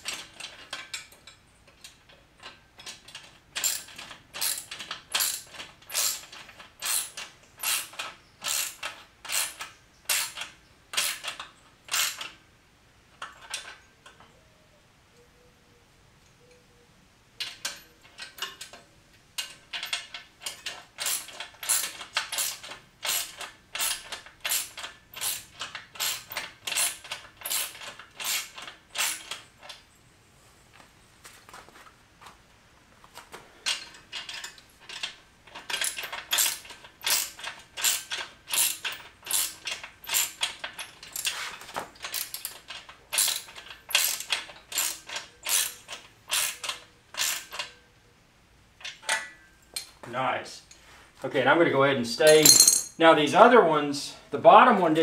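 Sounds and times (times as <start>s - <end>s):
ratchet wrench clicking: 2.9s - 12.3s, 19.4s - 29.8s, 33.7s - 41.4s, 42.1s - 47.7s.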